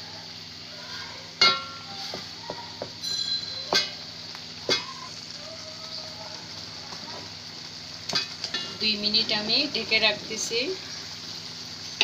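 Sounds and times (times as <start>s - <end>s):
meat sizzling in a pot: 0.0s - 12.0s
wooden spatula clanking on pot: 1.4s - 4.0s, 4.7s - 5.0s.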